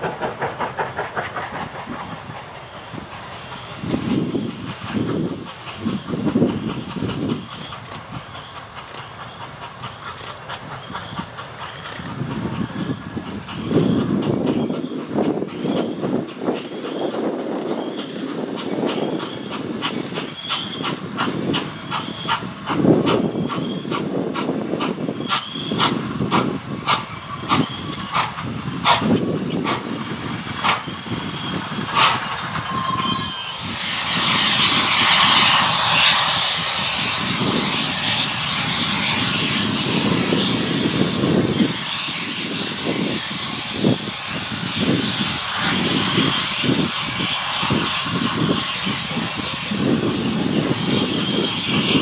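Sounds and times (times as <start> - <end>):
steam hissing: 0.0 - 52.0
steam locomotive rumble: 0.0 - 52.0
wheels clicking over rail joints: 4.9 - 29.9.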